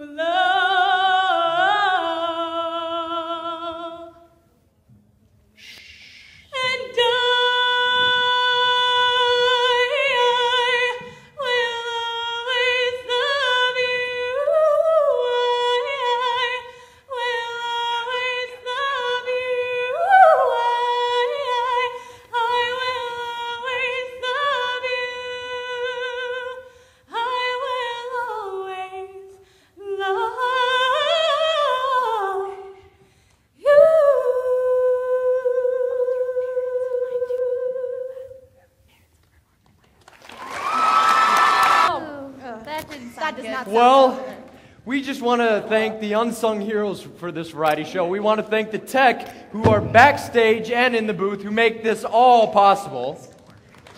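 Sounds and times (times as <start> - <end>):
singer breathing: 5.6 - 6.6, 16.7 - 17.1, 22.0 - 22.3, 26.7 - 27.1, 29.3 - 29.8, 32.8 - 33.6, 44.4 - 44.9, 49.2 - 49.6
girl singing unaccompanied: 33.6 - 38.6.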